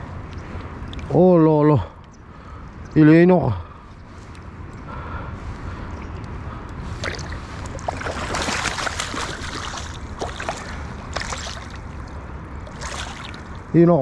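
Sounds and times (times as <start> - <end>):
fish splashing in shallow water: 6.9 - 13.6.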